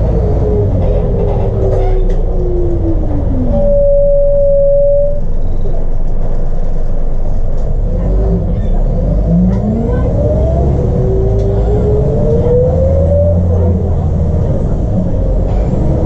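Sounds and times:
drivetrain whine: 0.0s - 8.5s
diesel engine low rumble: 0.0s - 16.0s.

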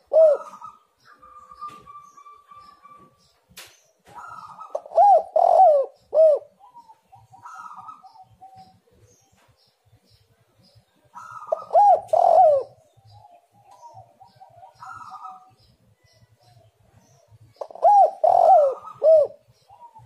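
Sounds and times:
dove cooing: 0.0s - 3.2s, 4.1s - 8.9s, 11.1s - 15.6s, 17.5s - 20.0s.

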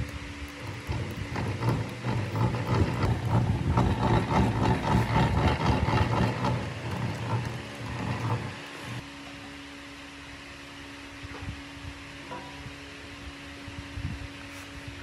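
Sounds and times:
gears clattering: 0.0s - 9.0s.

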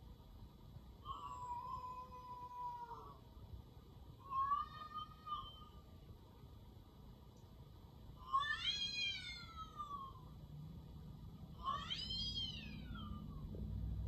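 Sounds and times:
cat meowing: 1.0s - 3.2s, 4.2s - 6.0s, 8.2s - 10.3s, 11.6s - 13.5s.

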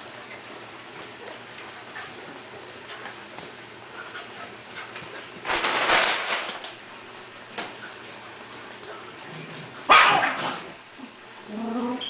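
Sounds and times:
dog barking: 9.9s - 10.4s.

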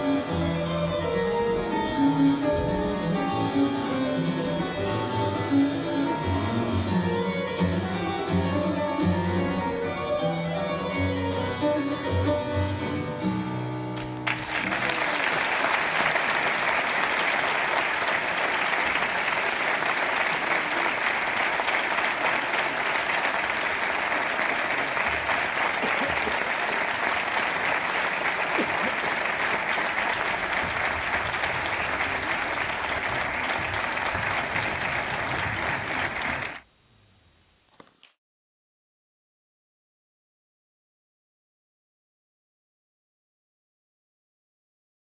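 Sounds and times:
harpsichord music: 0.0s - 14.0s
audience applause: 14.0s - 36.6s.

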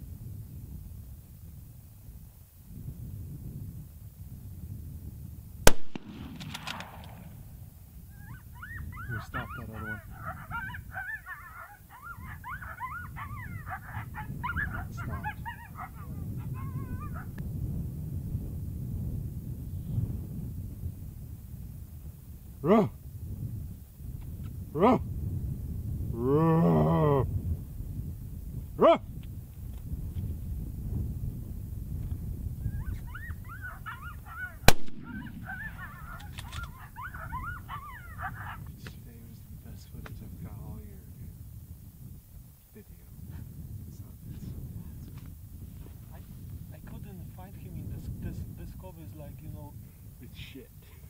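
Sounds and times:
wind rumble on microphone: 0.0s - 51.0s
rifle shot: 5.7s - 7.6s, 34.7s - 36.7s
coyote whimpers and yips: 8.1s - 17.4s, 32.6s - 38.7s.

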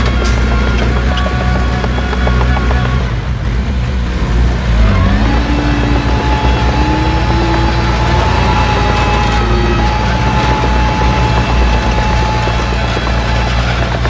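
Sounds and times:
bulldozer diesel engine rumble: 0.0s - 14.0s
rising whine: 3.8s - 14.0s.

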